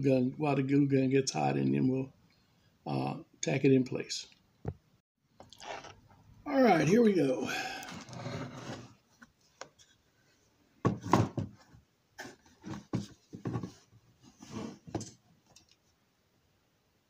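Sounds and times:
handling knocks and rubs: 0:10.8 - 0:15.2.

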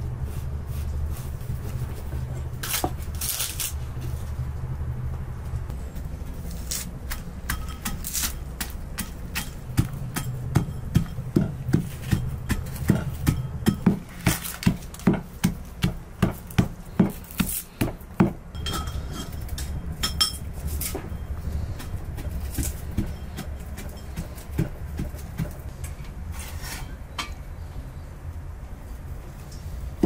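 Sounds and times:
low steady rumble: 0:00.0 - 0:30.0
brass pestle pounding in mortar: 0:07.1 - 0:19.0, 0:21.0 - 0:25.6.

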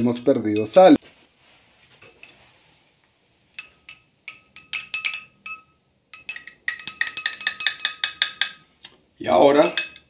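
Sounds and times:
metal stirrer clinking on glass: 0:03.6 - 0:08.7, 0:09.6 - 0:10.0.

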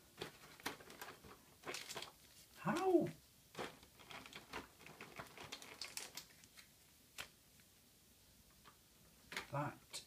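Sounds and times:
packaging crackling and clicking: 0:00.1 - 0:02.9, 0:03.5 - 0:07.3.

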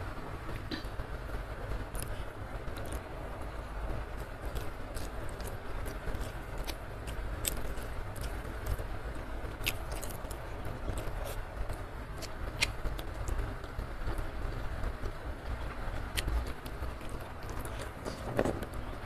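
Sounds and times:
person chewing food: 0:01.9 - 0:03.1, 0:04.4 - 0:13.5, 0:14.1 - 0:18.6.

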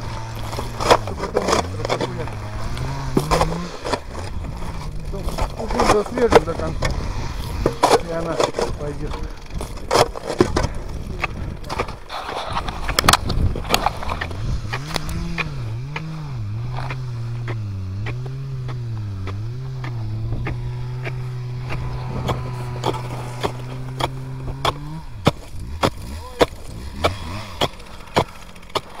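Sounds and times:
motor drone: 0:00.0 - 0:29.0
shovel knocking ice chunks: 0:00.3 - 0:02.4, 0:05.1 - 0:06.9, 0:07.6 - 0:12.0, 0:16.8 - 0:29.0.

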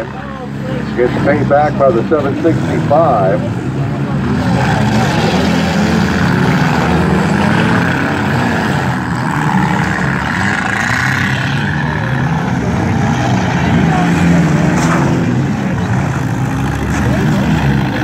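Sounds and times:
car engines revving: 0:00.0 - 0:18.0.

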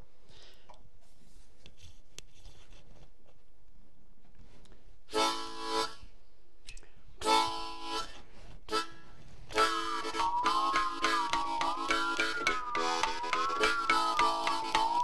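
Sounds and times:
harmonica chords: 0:05.1 - 0:06.1, 0:07.2 - 0:15.0
musical saw wavering tone: 0:09.6 - 0:15.0.

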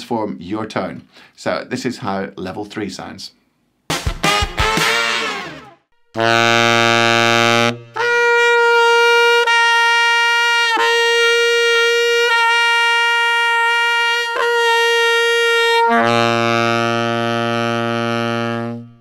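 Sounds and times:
tenor saxophone notes: 0:04.0 - 0:19.0.

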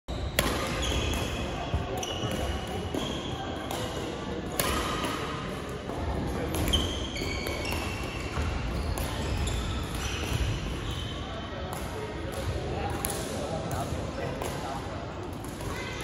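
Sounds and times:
sneakers squeaking on wooden floor: 0:00.1 - 0:03.4, 0:06.6 - 0:11.2
racket hitting shuttlecock: 0:00.4 - 0:01.4, 0:02.2 - 0:05.5.

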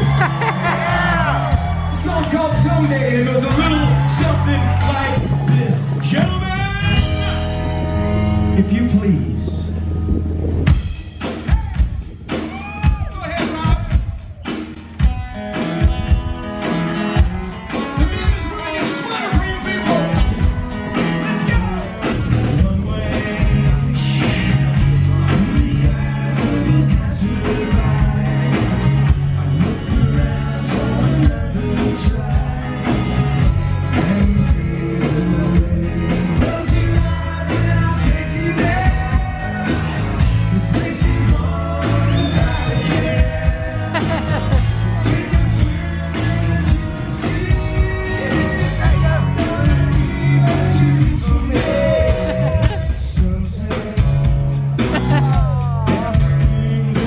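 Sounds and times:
rock band music with singing: 0:00.0 - 0:57.0.

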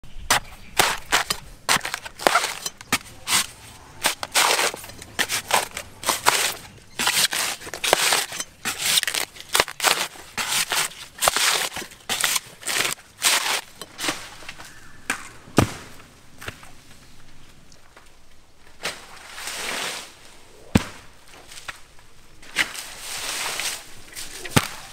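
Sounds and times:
knife chopping coconut husk: 0:00.3 - 0:13.7
husk fibre tearing: 0:00.3 - 0:14.5.

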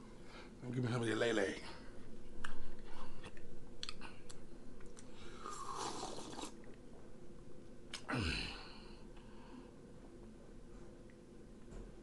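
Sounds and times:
man sipping from mug: 0:05.4 - 0:06.7.

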